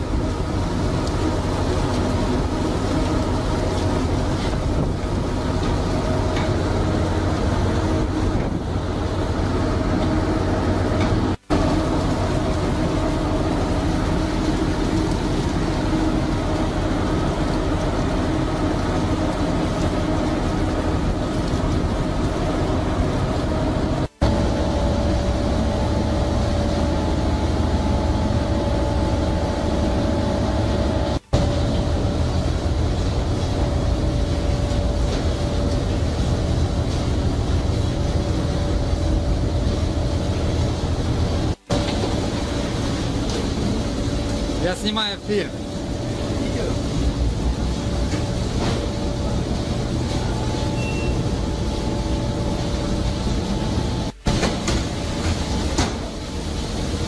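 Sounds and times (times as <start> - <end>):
ship machinery drone: 0.0 - 57.0
faint steady hum: 24.1 - 54.4.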